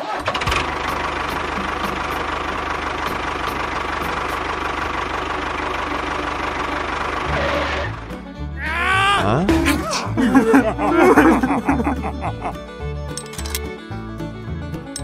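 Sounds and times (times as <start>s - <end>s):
tractor engine chugging: 0.1s - 8.1s.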